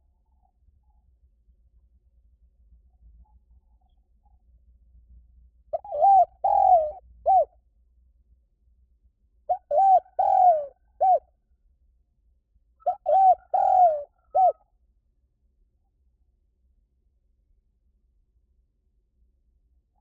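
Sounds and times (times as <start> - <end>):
dove cooing: 5.7 - 7.6, 9.5 - 11.3, 12.8 - 14.6.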